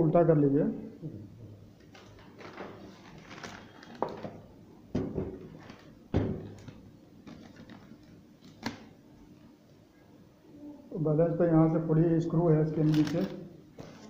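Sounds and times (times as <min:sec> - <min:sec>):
newspaper rustling: 0:01.9 - 0:04.4, 0:05.5 - 0:08.9, 0:12.8 - 0:14.0.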